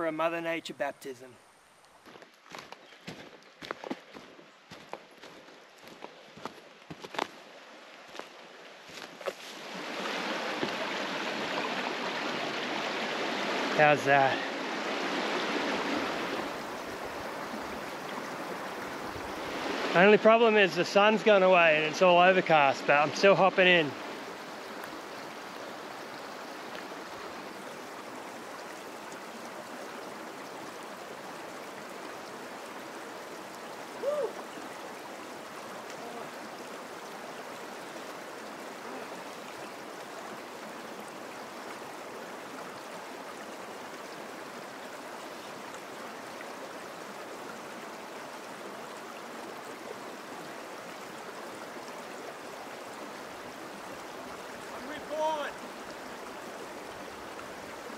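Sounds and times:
creek water running over boulders: 0:00.0 - 0:57.9
short cry: 0:34.0 - 0:34.4.

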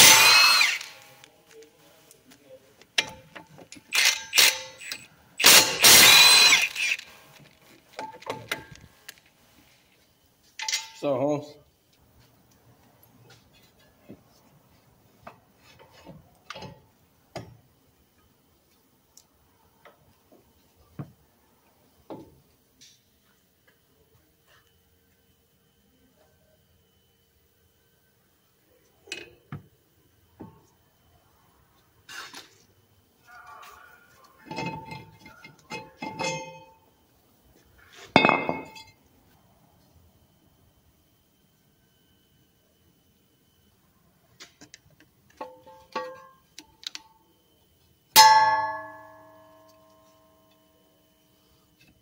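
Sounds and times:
metal parts clicking and knocking: 0:03.0 - 0:07.1
metal rotor clanging on concrete: 0:34.4 - 0:36.8, 0:38.1 - 0:39.0.

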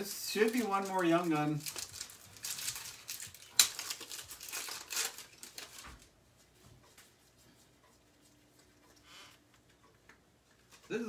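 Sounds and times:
wrapper tearing and crinkling: 0:00.0 - 0:06.0
cards rustling and ticking: 0:00.0 - 0:06.2.

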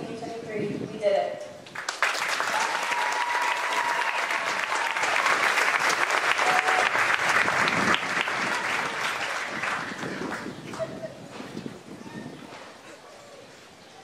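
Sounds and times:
audience applauding: 0:01.7 - 0:10.9.

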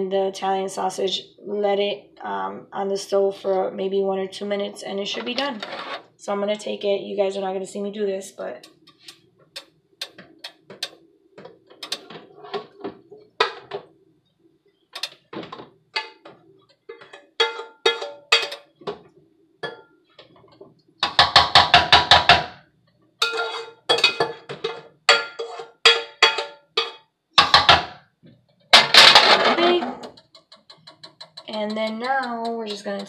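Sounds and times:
kitchen clicks and knocks: 0:08.7 - 0:13.9, 0:15.0 - 0:22.6, 0:23.2 - 0:27.9, 0:28.7 - 0:33.0
rapid metallic ratcheting clicks: 0:30.0 - 0:33.0.

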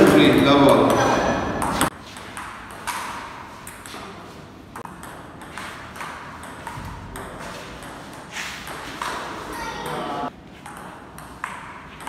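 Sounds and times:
ball bouncing on table: 0:00.0 - 0:04.2, 0:04.8 - 0:10.0
ping pong ball hitting paddles: 0:00.0 - 0:12.0.

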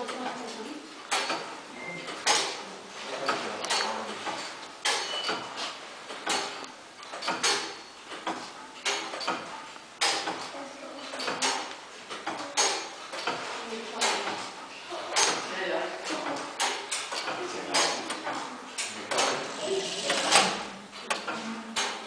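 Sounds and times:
clock mechanism ticking: 0:11.1 - 0:14.5.

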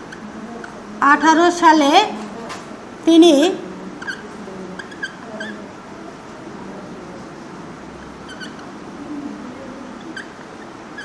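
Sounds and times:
marker squeaking on whiteboard: 0:00.0 - 0:01.5, 0:03.9 - 0:05.8, 0:07.9 - 0:11.0
room noise: 0:00.0 - 0:11.0.

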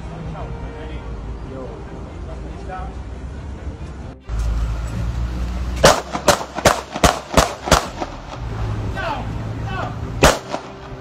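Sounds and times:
gunshots: 0:05.8 - 0:08.4, 0:10.2 - 0:10.8.

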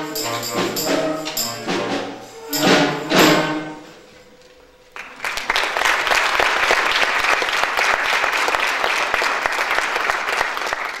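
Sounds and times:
audience clapping: 0:04.9 - 0:11.0.

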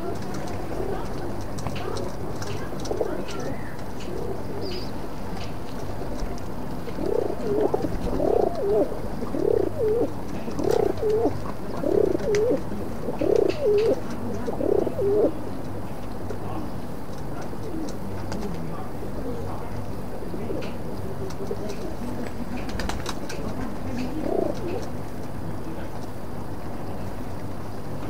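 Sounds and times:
pigeon cooing: 0:06.9 - 0:15.4, 0:23.9 - 0:24.9.

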